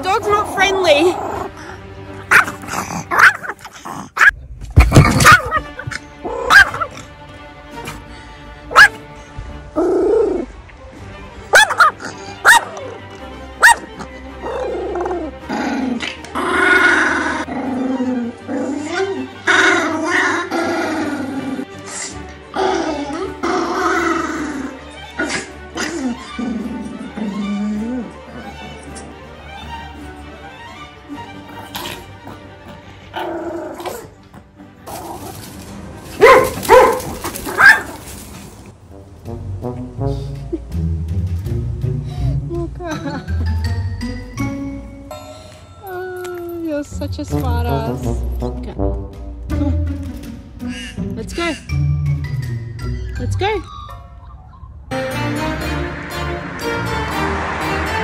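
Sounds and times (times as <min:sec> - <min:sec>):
background music: 0:00.0 - 0:58.0
dog barking: 0:02.3 - 0:03.6, 0:04.2 - 0:04.4, 0:05.2 - 0:05.8, 0:06.5 - 0:06.9, 0:08.7 - 0:09.0, 0:11.5 - 0:12.8, 0:13.6 - 0:13.9, 0:36.2 - 0:38.0
dog growling: 0:14.4 - 0:28.7, 0:31.5 - 0:34.2.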